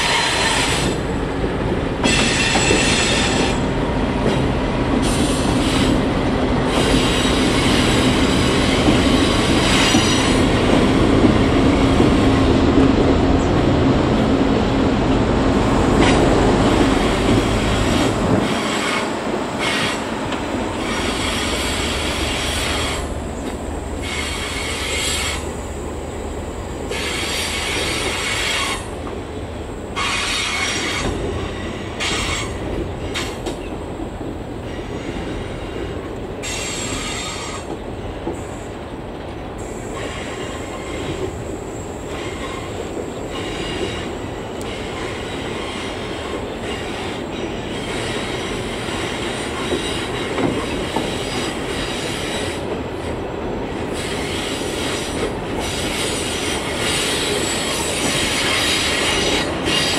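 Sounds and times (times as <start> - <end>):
diesel locomotive engines: 0.0 - 59.9
train wheels squealing on curve: 2.0 - 3.6, 6.7 - 10.6, 20.8 - 23.1, 24.0 - 25.5, 26.9 - 28.9, 30.0 - 33.5, 34.7 - 37.7, 39.6 - 52.7, 53.9 - 59.9.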